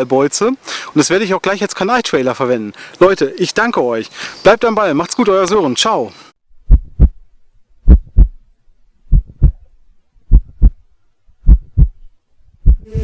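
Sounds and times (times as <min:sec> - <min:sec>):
heartbeat thumps: 0:06.6 - 0:08.4, 0:09.0 - 0:13.0.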